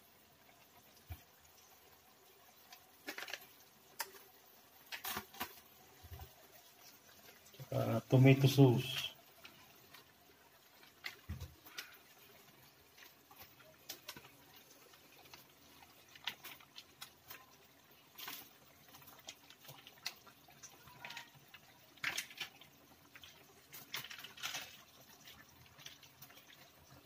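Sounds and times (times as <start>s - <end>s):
faint clicks and pops: 2.6s - 6.4s
plastic sachet rustles: 3.0s - 4.3s, 4.9s - 6.2s, 12.9s - 17.5s, 18.1s - 26.6s.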